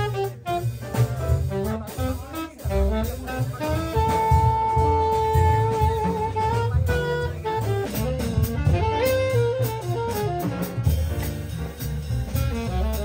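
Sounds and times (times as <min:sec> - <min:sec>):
saxophone melody: 0:00.0 - 0:11.4, 0:12.2 - 0:13.0
upright bass: 0:00.0 - 0:13.0.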